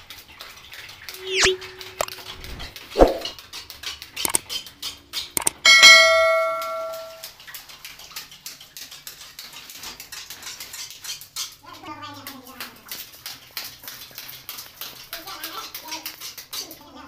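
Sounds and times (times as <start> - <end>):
button click: 1.2 - 2.2, 5.4 - 7.2
swoosh: 1.2 - 3.3
notification bell ding: 5.4 - 7.2.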